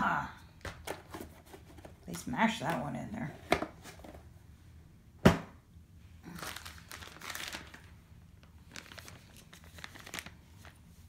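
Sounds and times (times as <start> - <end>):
plastic packaging crinkling: 6.2 - 11.0.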